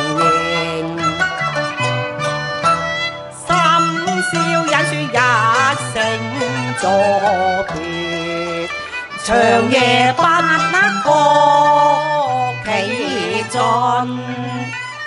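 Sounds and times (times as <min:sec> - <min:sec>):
bowed string accompaniment: 0:00.0 - 0:15.0
woman singing opera with vibrato: 0:09.2 - 0:14.8.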